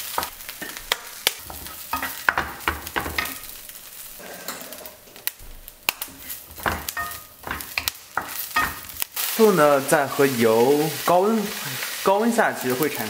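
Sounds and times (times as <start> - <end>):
food sizzling in oil: 0.0 - 13.0
wooden spatula scraping pan: 0.1 - 5.3, 6.0 - 9.0.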